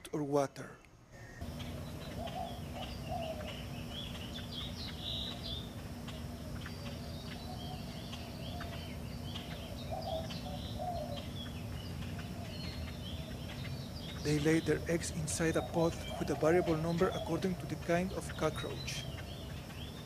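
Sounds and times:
birds chirping: 0.0s - 20.0s
steady low hum: 0.0s - 20.0s
bird cooing: 1.2s - 20.0s.

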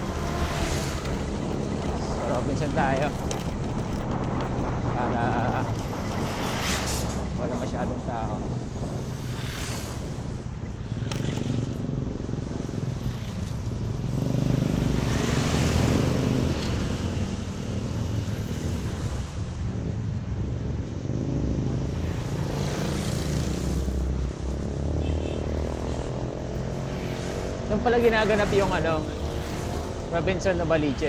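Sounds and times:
scooter engine running: 0.0s - 6.4s
wind and road noise: 0.0s - 31.0s.

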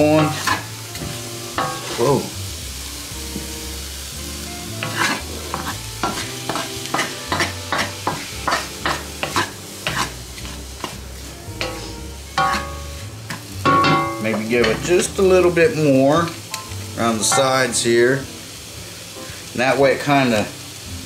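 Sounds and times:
wooden spatula scraping: 0.0s - 2.3s, 4.6s - 13.5s
onions sizzling in a wok: 0.0s - 21.0s.

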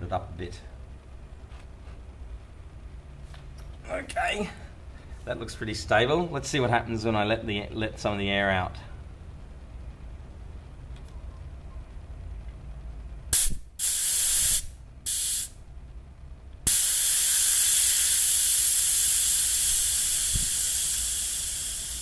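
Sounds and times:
air hissing from tyre valve: 13.3s - 15.6s, 16.6s - 22.0s.

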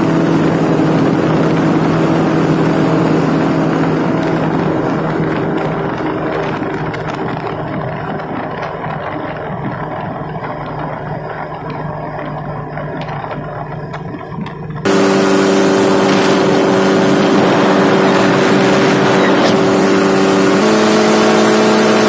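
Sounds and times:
paramotor engine droning: 0.0s - 22.0s.

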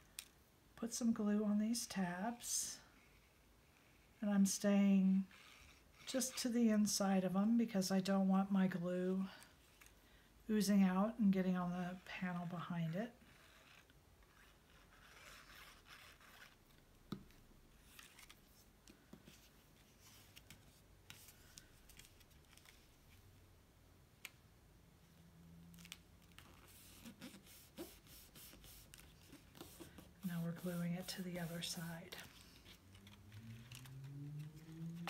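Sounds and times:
cardstock rustling: 25.8s - 35.0s.

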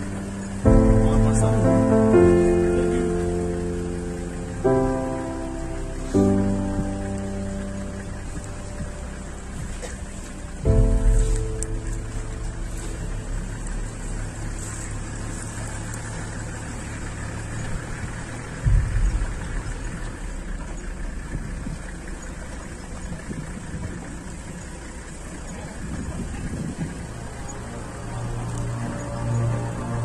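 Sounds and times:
low outdoor rumble: 0.0s - 30.0s
loud low thump: 0.6s - 2.8s, 5.8s - 14.5s, 18.6s - 22.7s.

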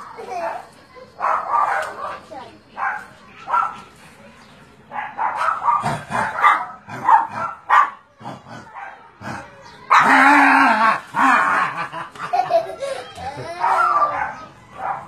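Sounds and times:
puppy barking and yipping: 5.0s - 8.0s, 13.6s - 15.0s
puppy drawn-out cry: 9.9s - 12.0s, 13.3s - 15.0s.

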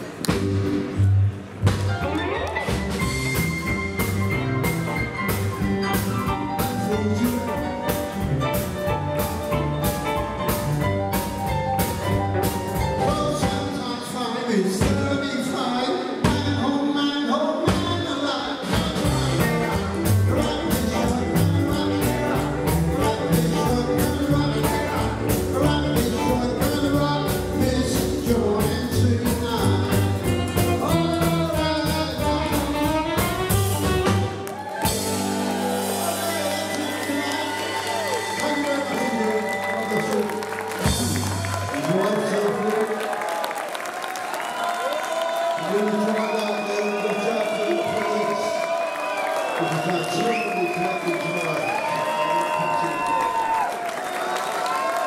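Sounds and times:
upright bass: 0.0s - 15.6s, 16.2s - 16.9s, 17.6s - 42.3s
rockabilly band playing: 0.0s - 44.7s
drums on a steady beat: 2.7s - 13.8s, 17.7s - 36.4s
man singing lead vocal: 6.5s - 8.2s, 13.0s - 33.0s, 36.0s - 42.9s.

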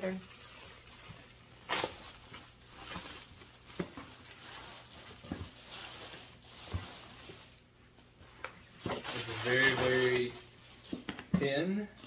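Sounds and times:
plastic bag crinkling and tearing: 0.0s - 7.6s, 8.9s - 10.9s.

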